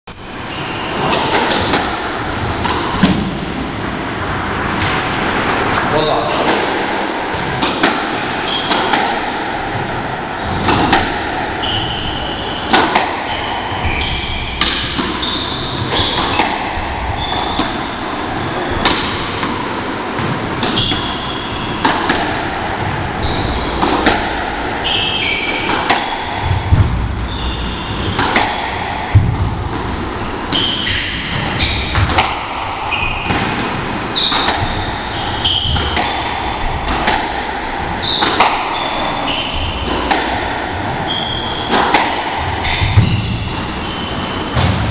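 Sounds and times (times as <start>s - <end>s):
squash ball hitting racket and walls: 0.1s - 44.9s
shoes squeaking on wooden floor: 13.3s - 14.4s, 15.2s - 16.5s.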